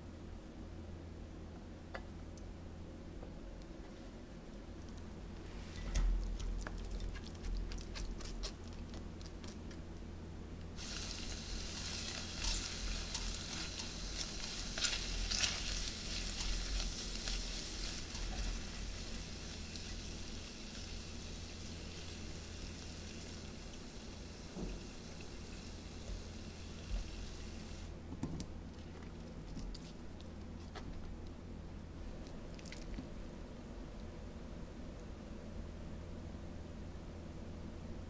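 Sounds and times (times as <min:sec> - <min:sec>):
spatula scraping and stirring: 0:05.4 - 0:09.7, 0:10.8 - 0:20.4
corn sizzling in pan: 0:10.8 - 0:27.9.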